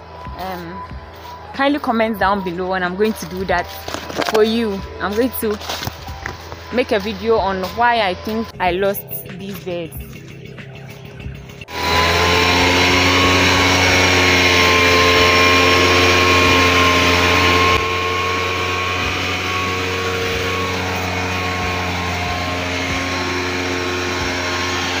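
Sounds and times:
two-stroke mist blower engine: 0.0 - 10.4, 11.1 - 25.0.

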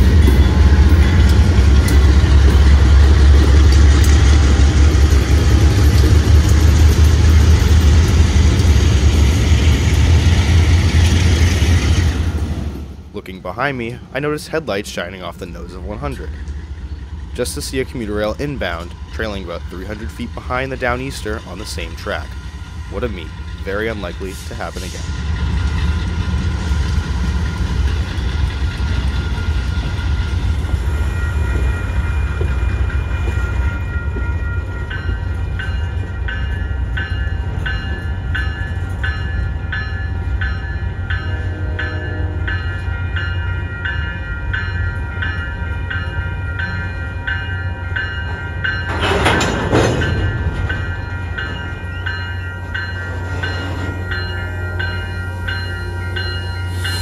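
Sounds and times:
crossing bell ringing: 0.0 - 5.9, 27.4 - 57.0
diesel train rumbling by: 0.0 - 57.0.

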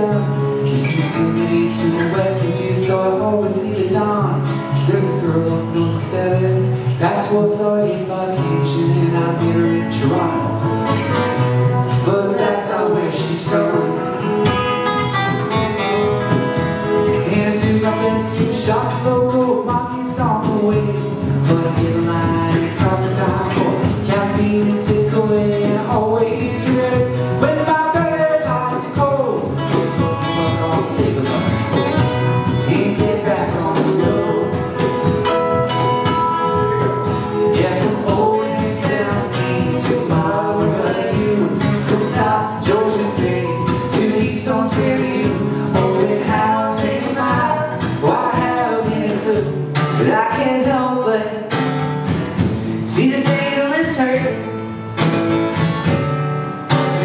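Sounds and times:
person singing: 0.0 - 10.6, 11.8 - 14.3, 17.0 - 35.4, 37.2 - 51.5, 52.7 - 54.5
acoustic guitars strumming: 0.0 - 57.0
cajon tapping a beat: 0.0 - 57.0.

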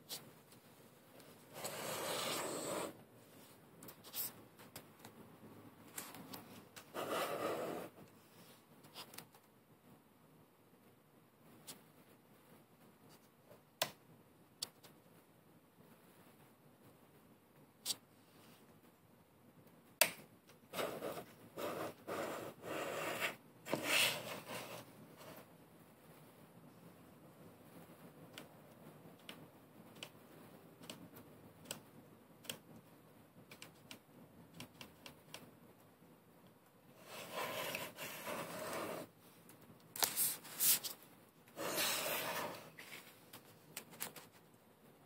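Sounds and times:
camera scraping on wooden table: 1.5 - 3.0, 37.0 - 39.1, 41.6 - 42.8.

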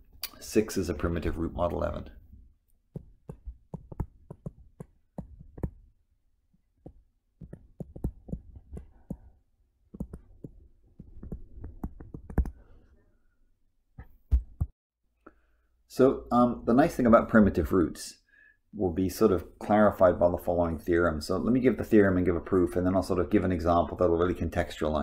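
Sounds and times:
stylus clicking on tablet screen: 2.7 - 5.8, 6.8 - 9.3, 9.9 - 12.7.

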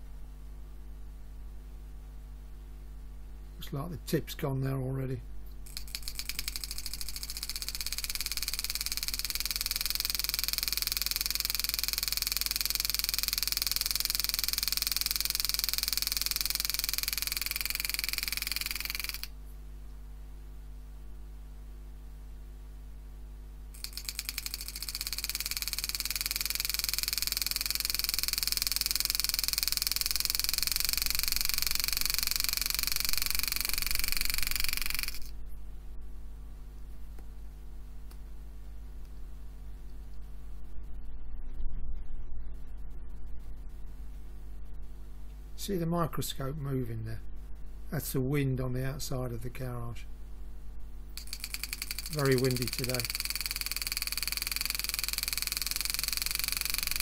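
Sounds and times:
steady low hum: 0.0 - 57.0
engraving machine buzzing: 5.7 - 19.4, 23.8 - 35.3, 51.2 - 57.0.

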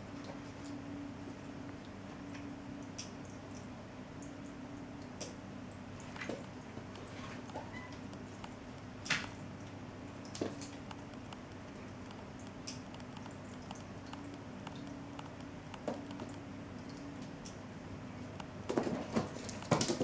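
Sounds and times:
steady low hum: 0.0 - 20.0
faint ticks and taps: 10.4 - 16.4.

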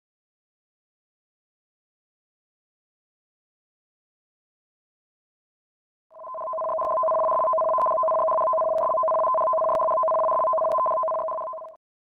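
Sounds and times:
electronic two-tone alert: 6.2 - 11.8.

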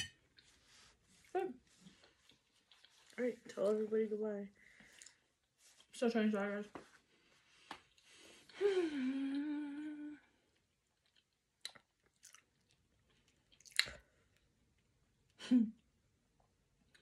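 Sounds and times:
woman humming: 8.6 - 10.3
chewing with mouth clicks: 10.8 - 14.1.

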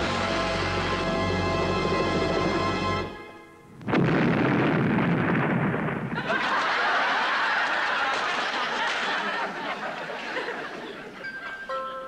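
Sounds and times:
smoke cannon blast: 3.8 - 6.2
audience laughing and cheering: 6.1 - 11.6.

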